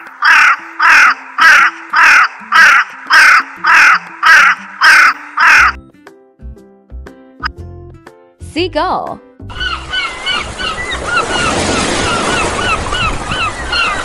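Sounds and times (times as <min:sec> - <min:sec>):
raven cawing: 0:00.0 - 0:05.8, 0:09.5 - 0:14.0.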